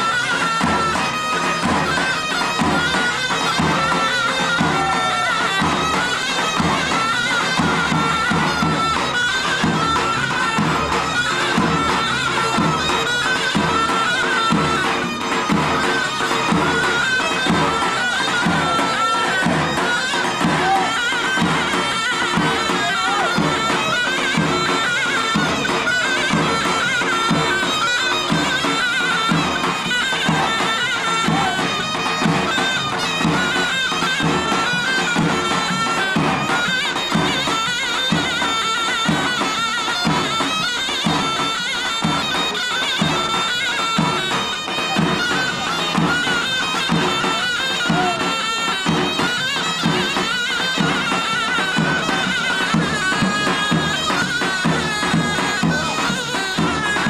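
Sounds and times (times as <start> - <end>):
shrill reed wind instrument melody: 0.0 - 57.0
regular drum beat: 18.4 - 57.0.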